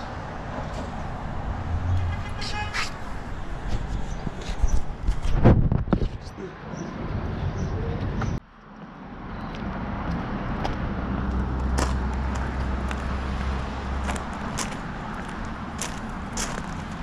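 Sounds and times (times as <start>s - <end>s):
motor vehicle humming: 0.0s - 5.1s, 5.8s - 17.0s
footsteps crunching on gravel: 9.5s - 17.0s.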